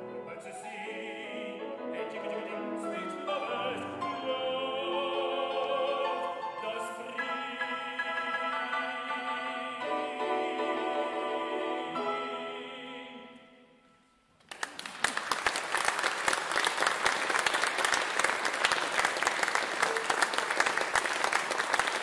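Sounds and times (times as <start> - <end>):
piano chords: 0.0 - 13.6
audience applause: 14.4 - 22.0.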